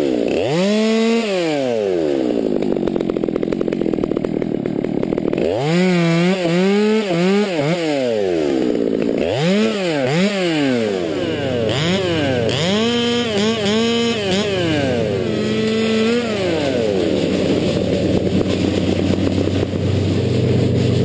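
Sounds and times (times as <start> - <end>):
chainsaw cutting and revving: 0.0 - 21.0.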